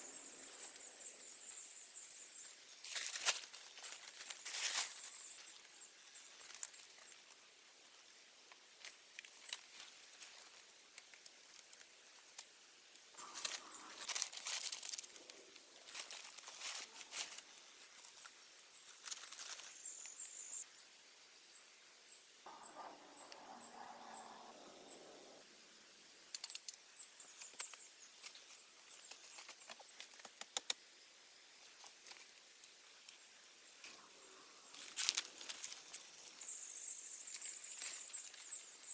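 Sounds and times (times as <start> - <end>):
dry palm fronds rustling: 2.8 - 7.4, 13.2 - 19.9, 34.7 - 38.9.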